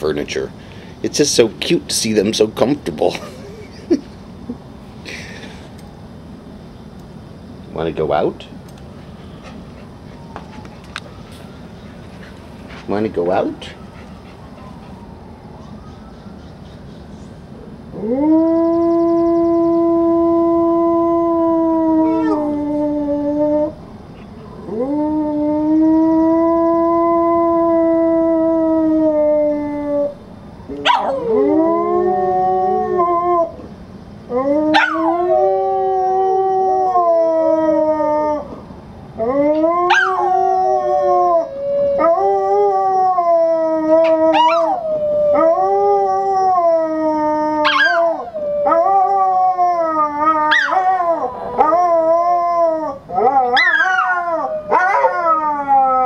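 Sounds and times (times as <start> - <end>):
dogs howling: 9.3 - 15.8, 17.9 - 56.0.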